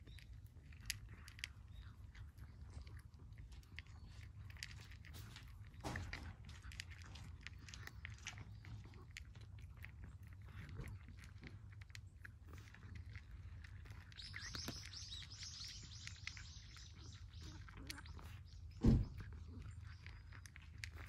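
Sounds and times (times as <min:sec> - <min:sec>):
cats crunching dry kibble: 0:00.0 - 0:21.0
small birds chirping: 0:00.0 - 0:21.0.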